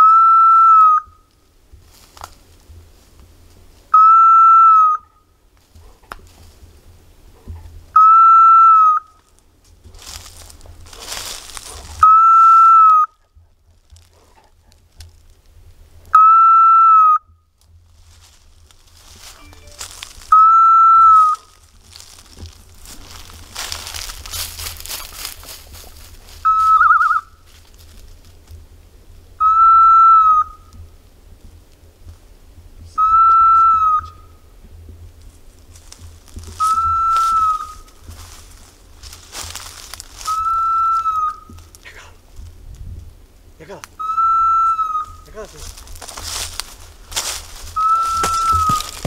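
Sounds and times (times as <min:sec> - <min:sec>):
leaves and twigs crackling underfoot: 0:00.9 - 0:04.0, 0:05.3 - 0:07.7, 0:08.9 - 0:16.1, 0:17.5 - 0:29.2, 0:33.2 - 0:49.0
wind gusts and rustling: 0:01.0 - 0:04.0, 0:05.0 - 0:08.0, 0:09.0 - 0:16.2, 0:17.2 - 0:29.4, 0:30.3 - 0:49.0
dog whistle blasts: 0:04.0 - 0:05.0, 0:08.0 - 0:09.0, 0:12.0 - 0:13.0, 0:16.2 - 0:17.2, 0:26.4 - 0:27.2, 0:29.4 - 0:30.5, 0:33.0 - 0:34.1, 0:36.6 - 0:37.8, 0:40.3 - 0:41.4, 0:44.0 - 0:45.1, 0:47.8 - 0:48.9
wind rumble on microphone: 0:17.2 - 0:49.0
electronic collar beeps: 0:19.3 - 0:20.5.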